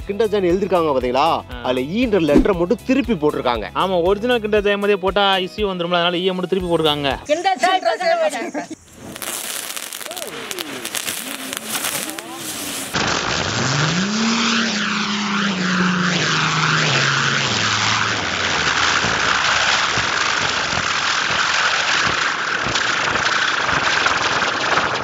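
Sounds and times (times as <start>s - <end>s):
firework fountains hissing: 7.3s - 25.0s
low tone sliding down: 13.9s - 19.8s.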